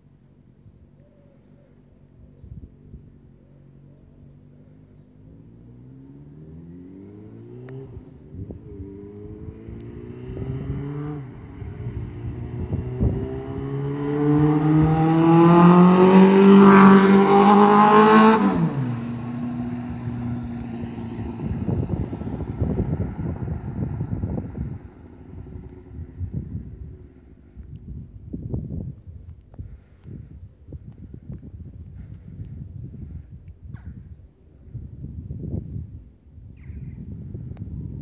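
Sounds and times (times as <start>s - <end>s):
motorcycle engine accelerating: 2.3s - 29.0s.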